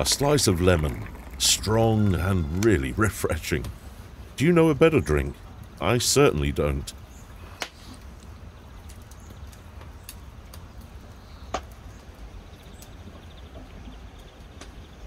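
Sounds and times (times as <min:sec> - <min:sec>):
low steady rumble: 0:00.0 - 0:07.4
wood fire crackling and popping: 0:00.0 - 0:15.0.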